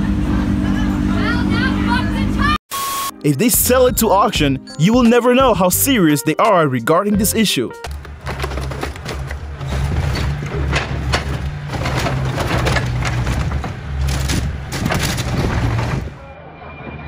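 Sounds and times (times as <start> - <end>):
excavator engine drone: 0.0 - 3.2
metal crumpling: 7.9 - 16.2.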